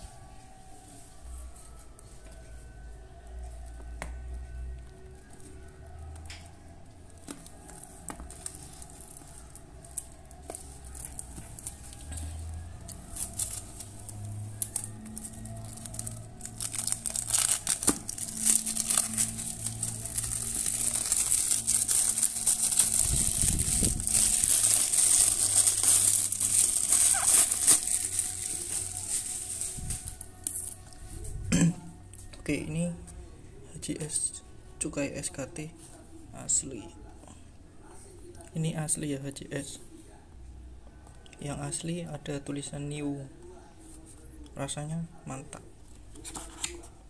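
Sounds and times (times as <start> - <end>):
cellophane crinkling: 7.1 - 30.8.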